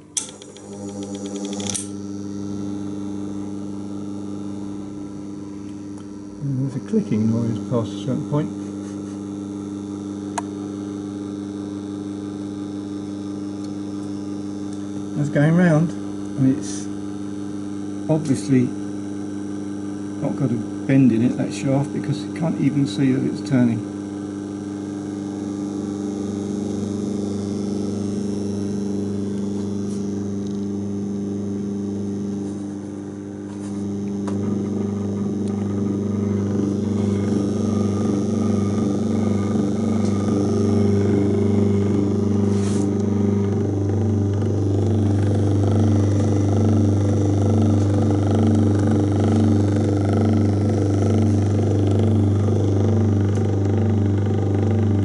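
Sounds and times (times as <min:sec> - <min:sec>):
electric motor humming: 0:00.0 - 0:55.0
sharp click: 0:00.1 - 0:02.0.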